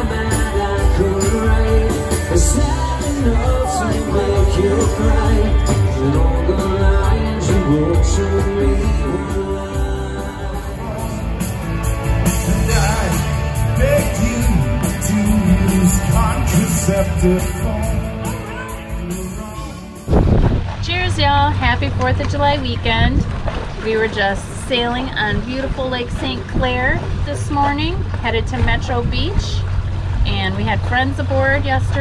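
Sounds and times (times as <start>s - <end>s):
rock music with singer: 0.0s - 21.5s
heavy bass line: 0.0s - 23.2s.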